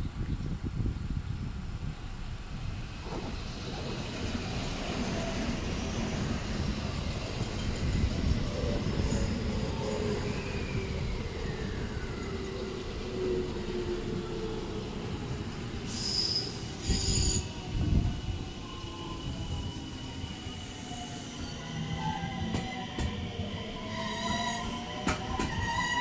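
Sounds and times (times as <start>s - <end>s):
train wheels rumbling: 1.7s - 26.0s
train whine: 1.8s - 26.0s
high-pitched wheel squeals: 15.9s - 17.6s, 23.8s - 26.0s.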